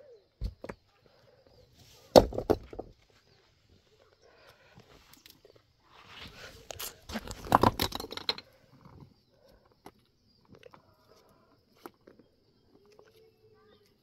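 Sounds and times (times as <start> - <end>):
stones crunching and clattering: 2.1 - 3.1, 6.6 - 9.0.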